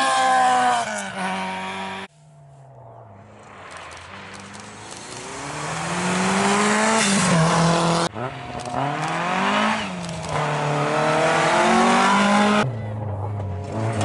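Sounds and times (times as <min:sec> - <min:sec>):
rally car engine accelerating: 0:02.8 - 0:14.0.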